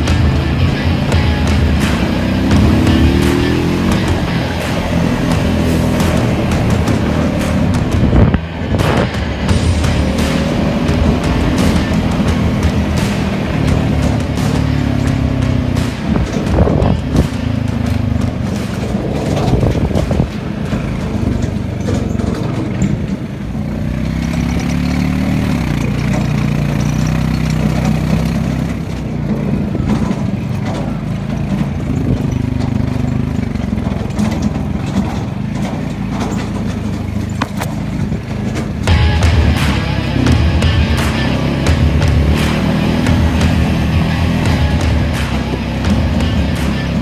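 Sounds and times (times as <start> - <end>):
knocks and rattles from bumps: 0.0 - 47.0
small vehicle engine running: 0.0 - 47.0.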